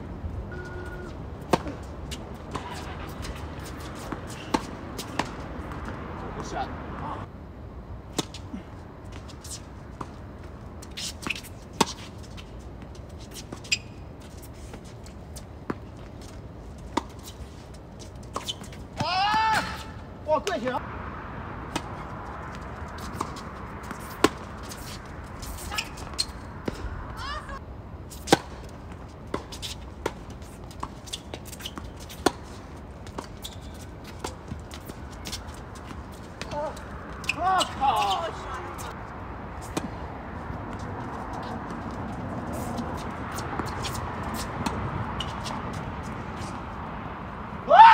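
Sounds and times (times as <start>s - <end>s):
tennis balls struck by rackets: 0.5s - 7.2s, 21.5s - 27.2s, 28.2s - 38.9s
tennis ball struck by racket: 1.4s - 6.5s, 21.7s - 22.0s, 28.2s - 28.6s.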